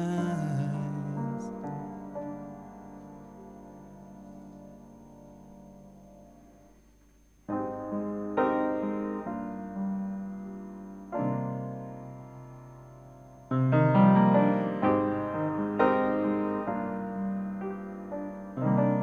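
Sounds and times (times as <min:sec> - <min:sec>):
piano chords: 0:00.0 - 0:06.8, 0:07.4 - 0:19.0.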